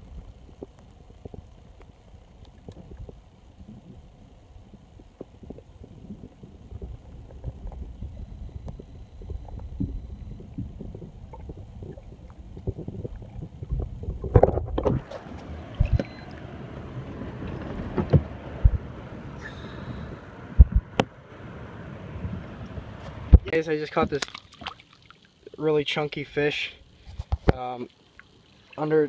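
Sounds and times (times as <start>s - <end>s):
underwater water sloshing: 4.7s - 18.9s, 22.6s - 25.5s
splashes and knocks: 23.3s - 25.2s.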